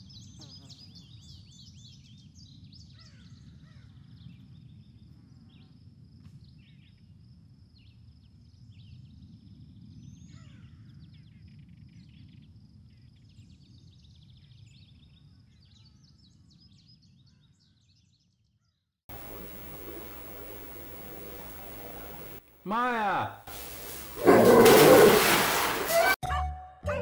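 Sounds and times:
small birds chirping: 19.1 - 22.6, 23.5 - 26.2
high insect buzz: 19.1 - 22.8, 23.4 - 26.2.

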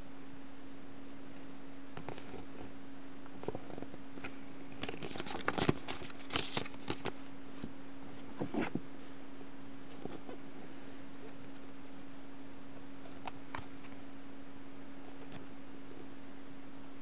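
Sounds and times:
steady low hum: 0.0 - 17.0
wrapper crinkling and rustling: 4.8 - 7.2
paper leaflet rustling: 4.8 - 7.7.

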